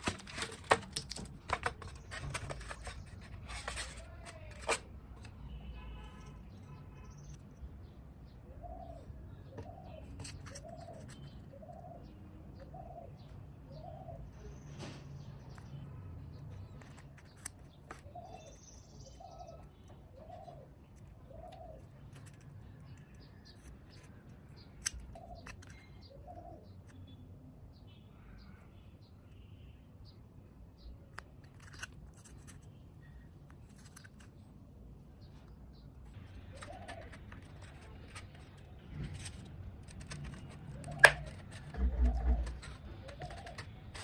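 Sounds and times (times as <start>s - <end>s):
foam scratching and clicking: 0.0s - 4.9s, 36.2s - 44.0s
bird calling: 40.3s - 44.0s.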